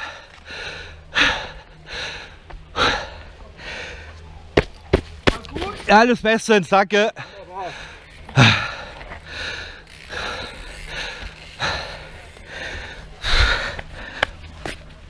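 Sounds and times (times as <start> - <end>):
person panting heavily: 0.0 - 4.2, 7.2 - 14.4.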